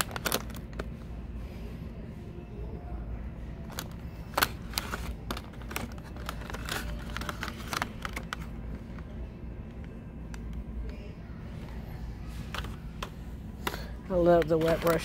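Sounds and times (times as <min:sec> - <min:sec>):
packaging clicks and taps: 0:00.0 - 0:00.9, 0:03.7 - 0:09.1, 0:12.4 - 0:15.0
steady low hum: 0:00.0 - 0:15.0.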